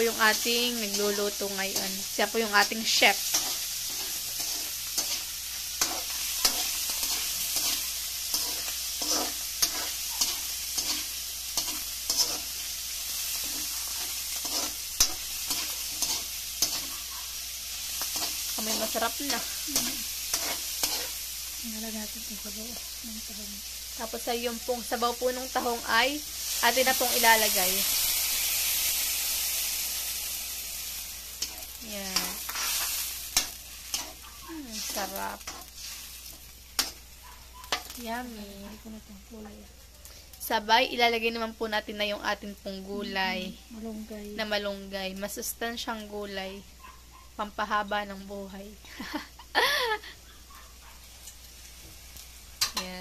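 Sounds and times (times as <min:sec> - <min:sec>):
mussels sizzling in oil: 0:00.0 - 0:53.0
metal ladle scraping wok: 0:00.1 - 0:17.0, 0:18.0 - 0:21.2, 0:30.9 - 0:37.0.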